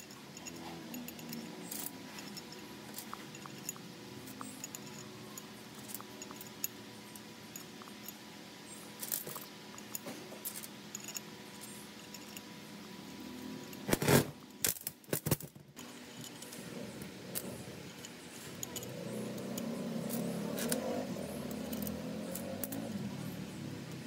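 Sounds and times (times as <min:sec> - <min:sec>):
metal tools clinking on workbench: 0:00.0 - 0:08.2, 0:09.0 - 0:12.5, 0:14.7 - 0:23.0.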